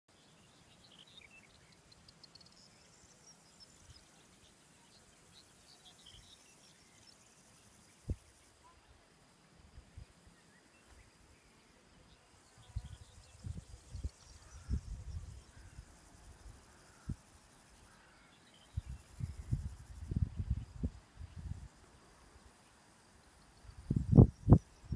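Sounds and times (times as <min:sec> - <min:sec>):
high wildlife chirps: 0:00.1 - 0:08.9, 0:10.0 - 0:21.7
wind buffeting microphone: 0:12.6 - 0:15.7, 0:18.7 - 0:21.7, 0:23.8 - 0:24.9.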